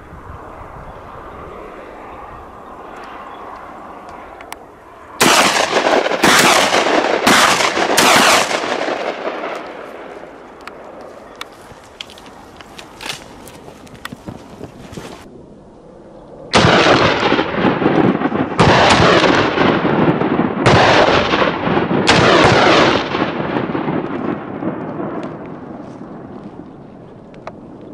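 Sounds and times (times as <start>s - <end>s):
loud gunshots with echo: 5.2s - 10.3s, 16.5s - 25.2s.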